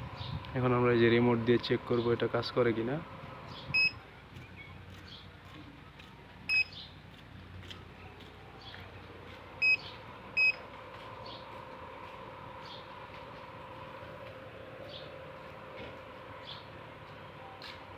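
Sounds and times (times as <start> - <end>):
short high buzzer beeps: 3.8 - 4.0, 6.5 - 6.8, 9.6 - 10.6.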